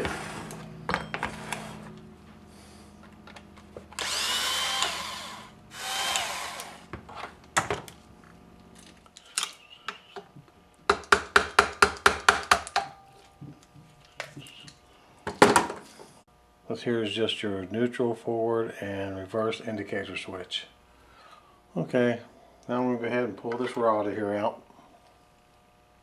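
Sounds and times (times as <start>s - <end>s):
cordless driver motor whine: 3.3s - 7.0s.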